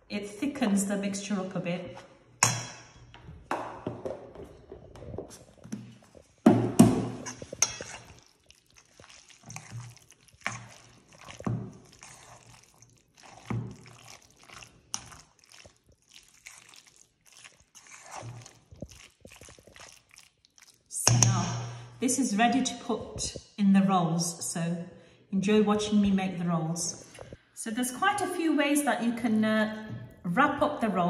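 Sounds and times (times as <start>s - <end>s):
metal spoon scraping a bowl: 7.1s - 15.2s, 17.8s - 18.6s.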